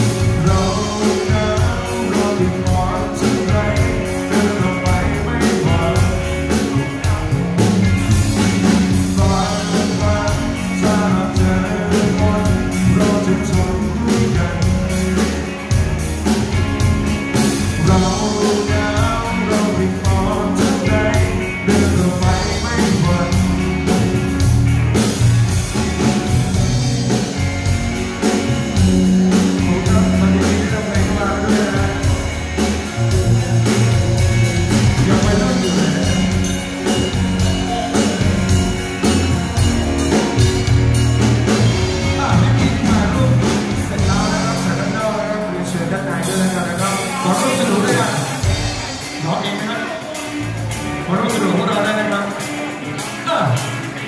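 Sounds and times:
man singing: 0:00.0 - 0:08.1, 0:08.7 - 0:15.6, 0:17.6 - 0:24.3, 0:28.8 - 0:38.6, 0:41.5 - 0:50.2
drum kit beat: 0:00.0 - 0:54.0
electric bass: 0:00.0 - 0:54.0
electric guitars: 0:00.0 - 0:54.0.

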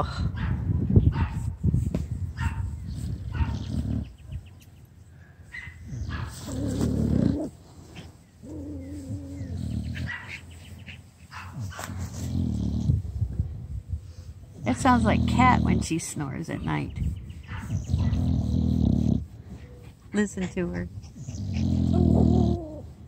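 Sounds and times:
dog grunting and snuffling: 0:02.5 - 0:04.4, 0:05.8 - 0:13.2, 0:14.6 - 0:16.5, 0:17.5 - 0:23.0
dog groaning: 0:06.0 - 0:10.2, 0:17.8 - 0:20.0, 0:20.6 - 0:23.0.

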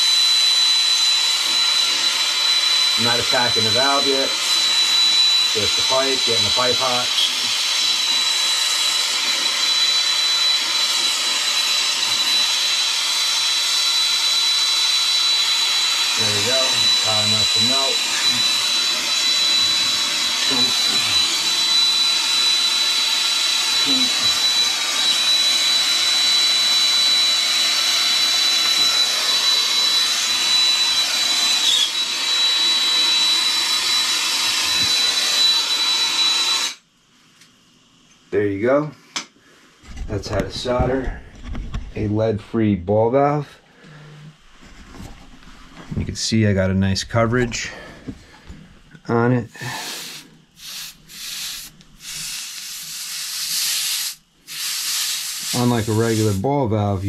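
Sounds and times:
soldering torch hissing: 0:00.0 - 0:36.8, 0:49.5 - 0:57.0
high whistle: 0:31.7 - 0:32.0
gas torch flame hissing: 0:49.5 - 0:57.0.

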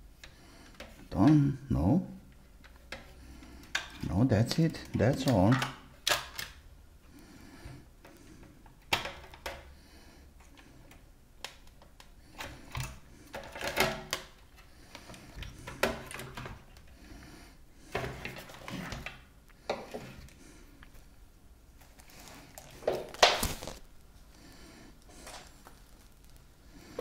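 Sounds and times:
clicks and rattles of plastic and metal: 0:02.6 - 0:06.6, 0:08.0 - 0:09.7, 0:10.4 - 0:16.9.

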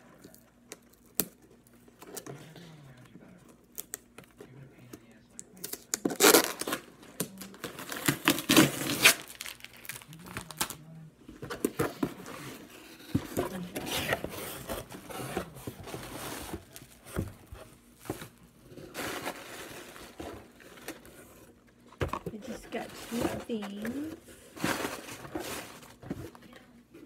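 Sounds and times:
packing tape ripping: 0:05.6 - 0:10.8
cardboard flaps tearing: 0:05.9 - 0:10.8
cardboard crinkling and rustling: 0:06.0 - 0:26.6.

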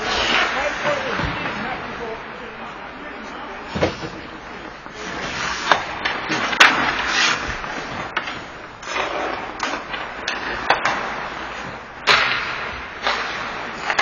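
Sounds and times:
skates scraping ice: 0:00.0 - 0:02.2, 0:04.9 - 0:14.0
sticks clacking puck: 0:05.6 - 0:14.0.

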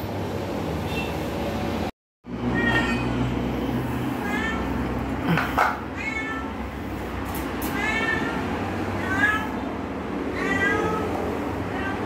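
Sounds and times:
cat meowing: 0:02.5 - 0:03.2, 0:04.2 - 0:04.9, 0:05.8 - 0:06.7, 0:07.6 - 0:09.7, 0:10.3 - 0:12.0.

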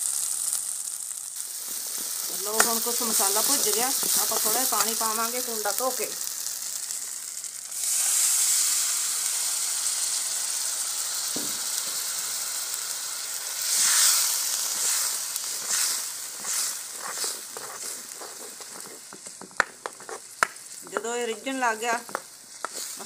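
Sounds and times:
water sizzling in hot oil: 0:00.0 - 0:23.0
ladle stirring: 0:14.7 - 0:20.4.

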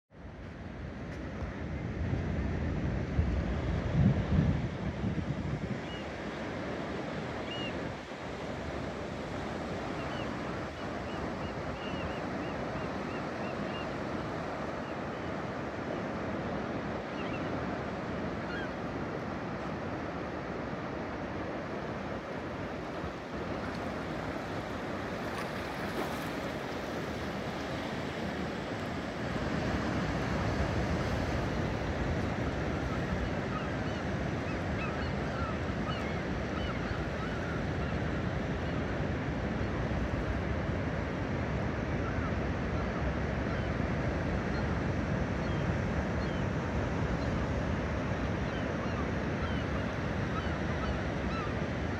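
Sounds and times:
wind: 0:00.0 - 0:51.9
ocean surf washing onto beach: 0:00.9 - 0:42.6
wind on microphone: 0:01.2 - 0:06.1
seabird calls: 0:07.3 - 0:07.8, 0:09.7 - 0:15.4, 0:17.0 - 0:18.9, 0:29.5 - 0:38.9, 0:47.2 - 0:51.6.

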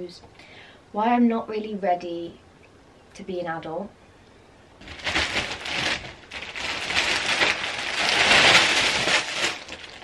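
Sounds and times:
plastic packets rustling: 0:04.8 - 0:10.0.

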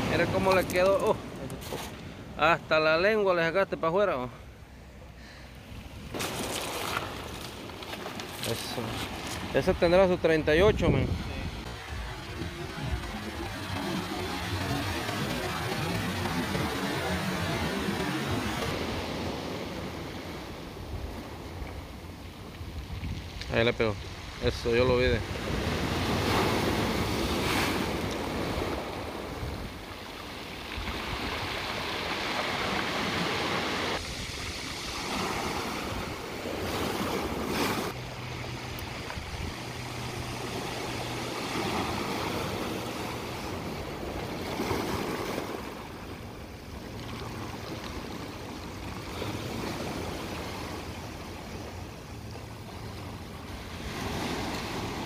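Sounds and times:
surf breaking on pebbly beach: 0:06.1 - 0:10.0.

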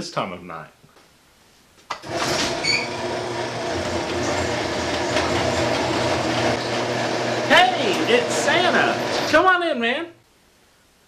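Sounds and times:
garage door rolling up: 0:01.9 - 0:09.5
garage door opener motor: 0:02.0 - 0:09.5
high squeak: 0:02.4 - 0:03.0.

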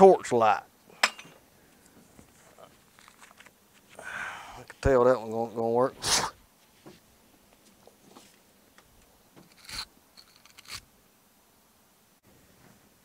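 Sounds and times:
scraping rustles: 0:06.6 - 0:08.5.

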